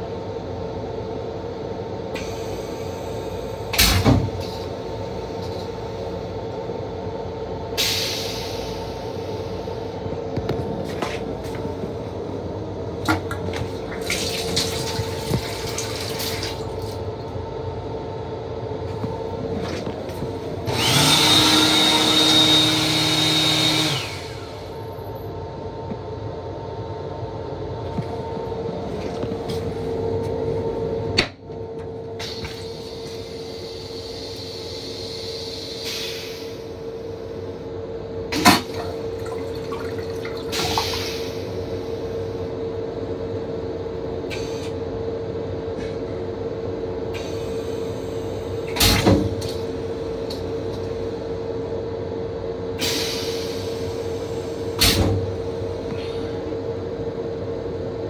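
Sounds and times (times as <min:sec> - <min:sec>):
railcar hum: 0:00.0 - 0:21.1, 0:23.8 - 0:58.0
high whine of sensor fixture: 0:00.0 - 0:58.0
toilet flushing: 0:13.0 - 0:17.0, 0:20.7 - 0:24.8, 0:38.3 - 0:42.0.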